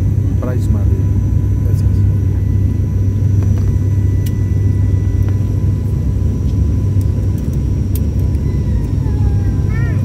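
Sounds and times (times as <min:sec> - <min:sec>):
turboprop engines droning: 0:00.0 - 0:10.0.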